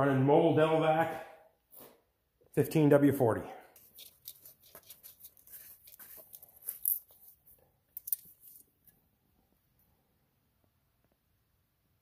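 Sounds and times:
hands handling objects: 0:03.8 - 0:08.9.

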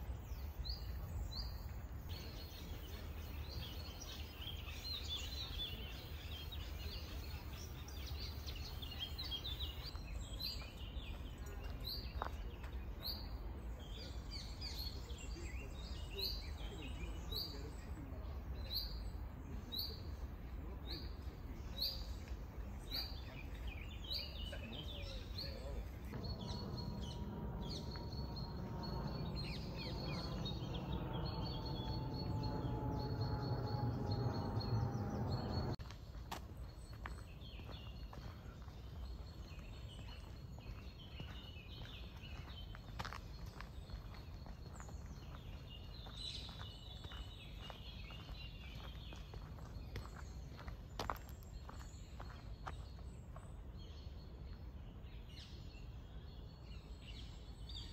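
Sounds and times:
birds singing: 0:00.0 - 0:57.9
low background hum: 0:25.2 - 0:36.0
low rumble with falling drone: 0:25.7 - 0:35.8.

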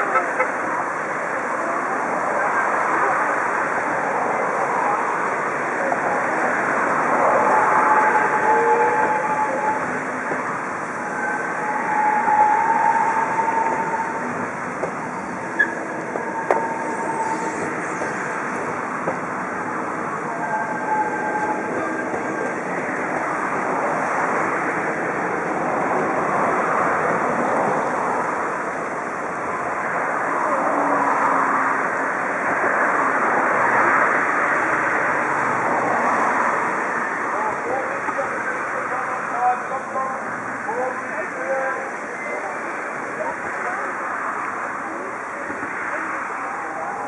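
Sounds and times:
wheels rushing on rail: 0:00.0 - 0:47.0
thin wheel squeals: 0:11.0 - 0:14.4, 0:15.0 - 0:18.6, 0:20.4 - 0:22.6.

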